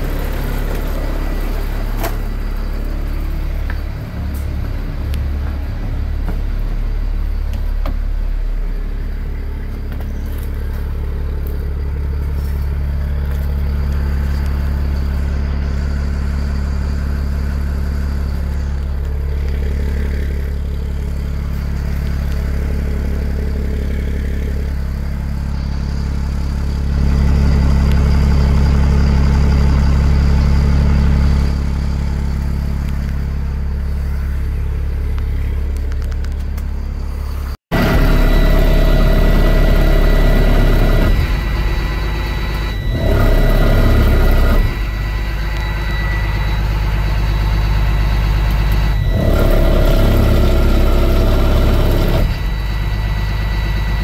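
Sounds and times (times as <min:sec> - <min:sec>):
diesel engine idling: 0:00.0 - 0:54.0
steady high tone: 0:36.7 - 0:51.4.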